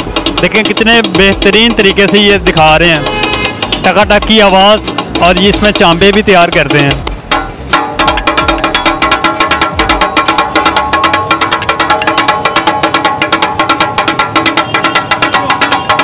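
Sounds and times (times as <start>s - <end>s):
metal spatulas clattering on griddle: 0.0s - 4.0s.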